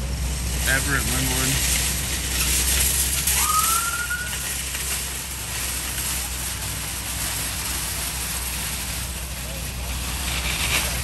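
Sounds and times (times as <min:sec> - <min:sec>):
low rumble of vehicles: 0:00.0 - 0:11.0
police siren chirp: 0:03.3 - 0:04.5.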